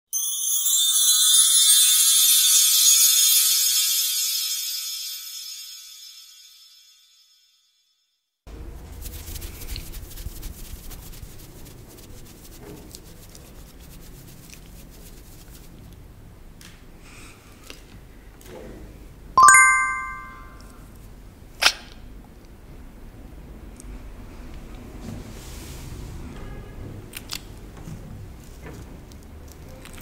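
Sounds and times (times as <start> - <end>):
bright chime: 0.2 - 7.5, 19.4 - 20.6
short bright ting: 19.4 - 20.6.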